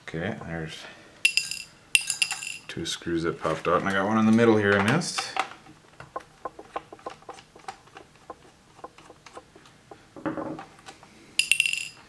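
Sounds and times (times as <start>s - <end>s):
bright metallic clink: 1.3s - 2.6s, 11.4s - 12.0s.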